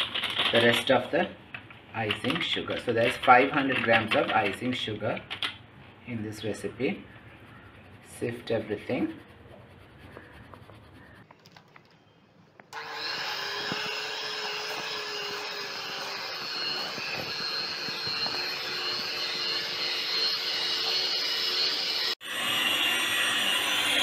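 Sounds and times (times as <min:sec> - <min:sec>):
sugar sifting through metal sieve: 0:06.2 - 0:11.3
electric hand mixer running: 0:12.8 - 0:24.0.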